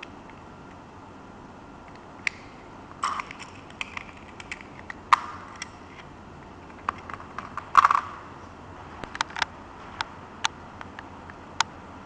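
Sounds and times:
tape measure clicking and rattling: 3.0 - 6.1, 6.7 - 8.2.

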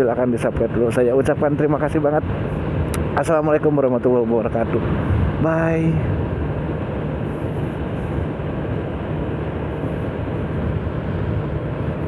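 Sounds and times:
wind on microphone: 4.6 - 12.0
scooter engine hum: 4.9 - 12.0.

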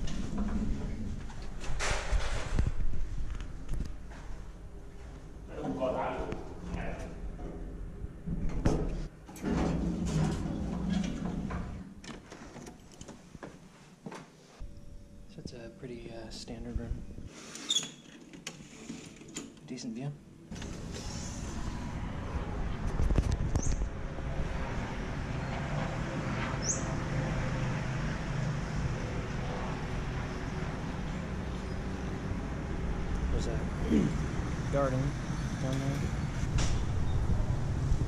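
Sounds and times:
city traffic rumble: 20.4 - 38.0
bird chirping: 26.6 - 27.0.

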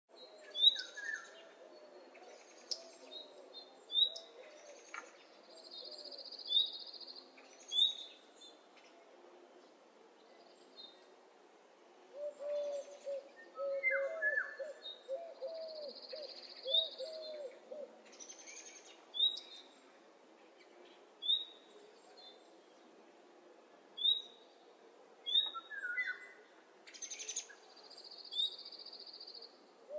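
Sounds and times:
low wavering bird calls: 12.1 - 18.1.

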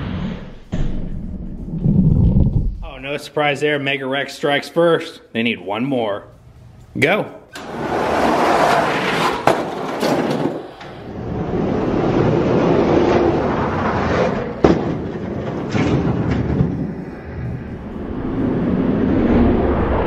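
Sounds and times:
toy trucks rolling on plastic track: 7.6 - 13.6.

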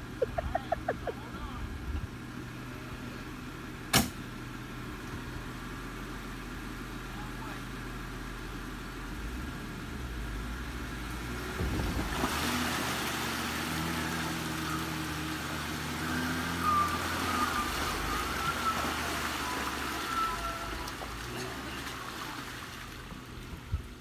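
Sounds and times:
tires splashing through mud and water: 9.2 - 24.0.

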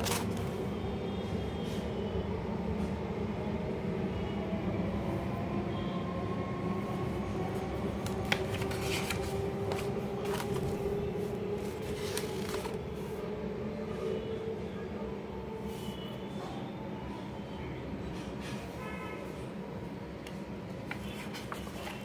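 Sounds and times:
paper pages turning: 0.0 - 0.6, 8.0 - 13.0, 20.8 - 22.0.

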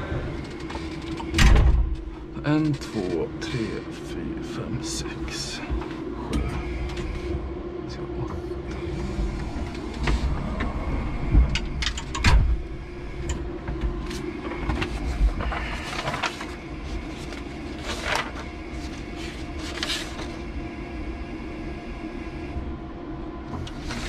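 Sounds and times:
steady low hum: 0.0 - 24.0
paper rustling and shuffling: 14.0 - 20.5.

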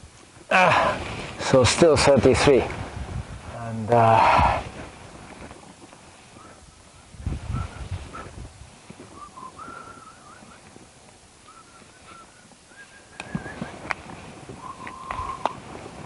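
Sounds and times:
grass rustling: 0.0 - 16.0
faint whistled call: 6.4 - 8.4, 9.0 - 10.7, 11.4 - 13.9, 14.6 - 15.7.

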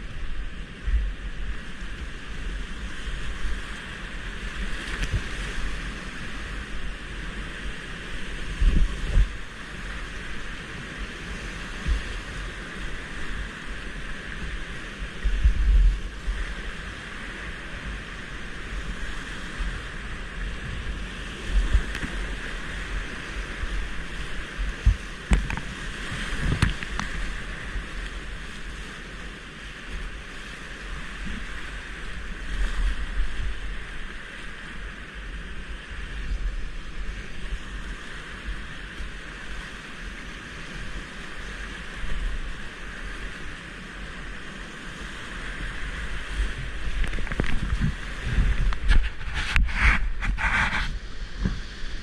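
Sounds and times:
wind buffeting microphone: 0.0 - 28.6, 45.1 - 52.0
boat knocks and splashes: 24.5 - 27.4, 46.3 - 52.0.

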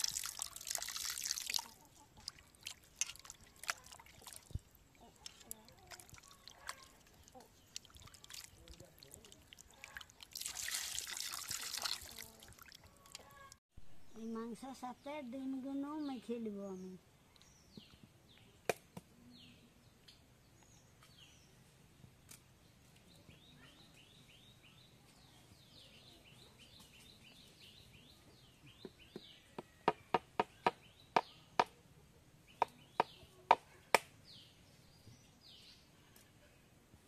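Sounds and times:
birds chirping: 1.6 - 10.3.

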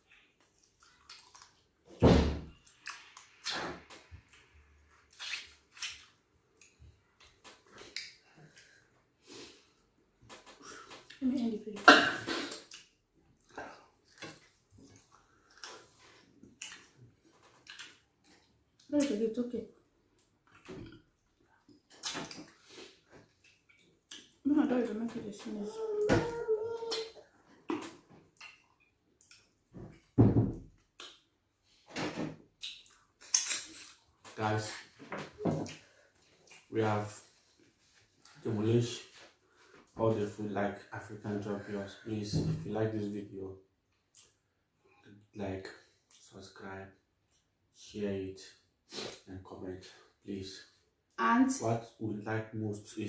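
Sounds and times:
eating mouth sounds: 0.0 - 1.6.

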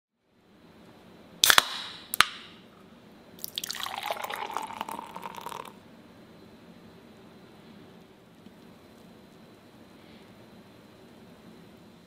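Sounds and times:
drink can opening crack: 1.4 - 2.5
beer pouring into glass: 3.4 - 5.8.

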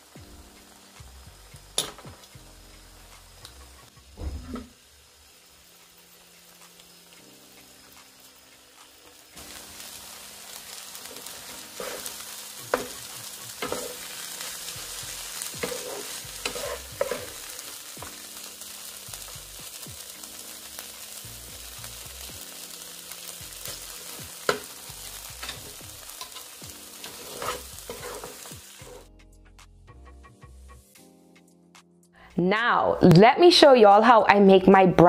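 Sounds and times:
filling sizzling in frying pan: 0.0 - 29.1
wooden spatula scraping pan: 11.4 - 13.0, 15.6 - 17.4, 27.0 - 29.1.

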